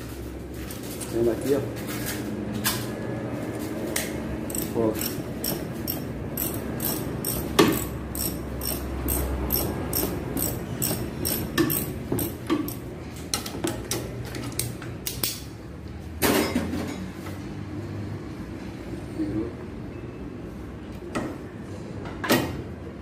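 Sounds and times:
ratchet wrench clicking: 4.5 - 12.9.

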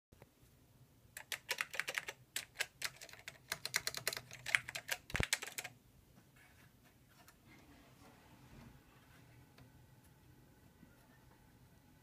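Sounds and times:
keyboard typing clicks: 1.2 - 5.7.

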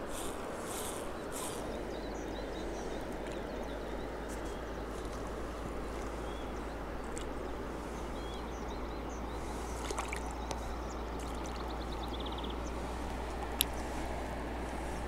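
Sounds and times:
moving water: 0.0 - 15.0
small birds chirping: 0.0 - 15.0
rapid ticks: 0.1 - 1.7.

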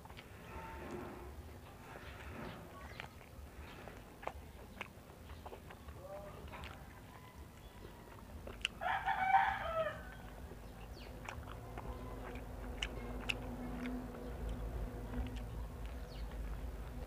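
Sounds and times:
low steady hum: 0.0 - 17.0
corn kernels being bitten: 7.6 - 9.2, 11.0 - 17.0
rooster crowing: 8.8 - 10.3.

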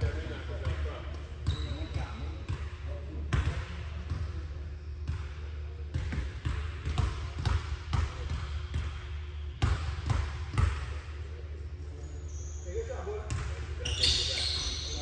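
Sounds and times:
basketball bouncing on gym floor: 0.0 - 11.0, 12.7 - 15.0
steady low hum: 0.0 - 13.8.

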